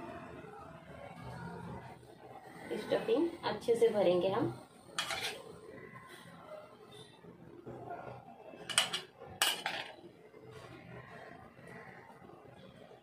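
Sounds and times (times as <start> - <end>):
metal spoon scraping a bowl: 5.0 - 5.6.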